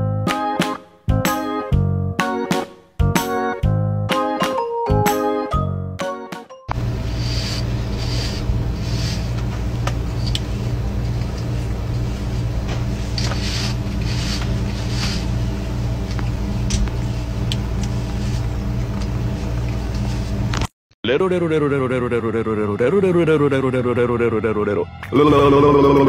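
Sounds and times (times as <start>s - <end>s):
brush stroking fur: 6.8s - 9.4s, 11.4s - 18.6s, 19.3s - 20.4s.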